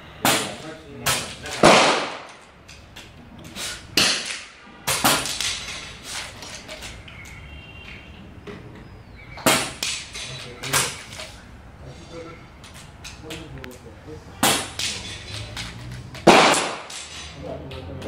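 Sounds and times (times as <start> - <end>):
air rifle firing cracks: 0.2 - 2.4, 14.4 - 15.0, 16.2 - 17.2.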